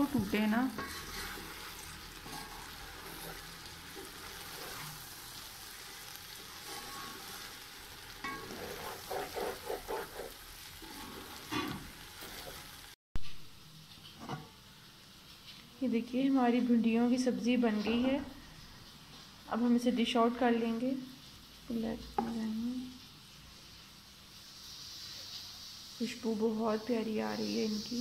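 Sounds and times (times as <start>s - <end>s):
wooden spoon stirring: 0.0s - 7.6s, 8.2s - 12.7s
vegetables sizzling in a metal pot: 0.0s - 28.0s
spoon tapping and scraping pot: 0.2s - 1.5s, 8.2s - 10.3s, 22.2s - 22.4s.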